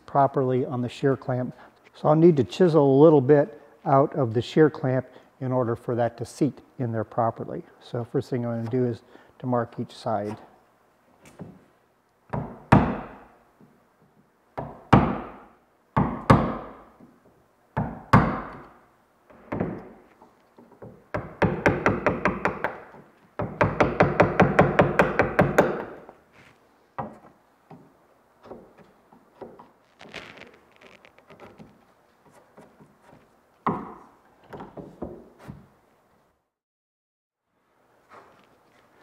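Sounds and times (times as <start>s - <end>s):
wood chisel being struck: 20.8s - 26.0s.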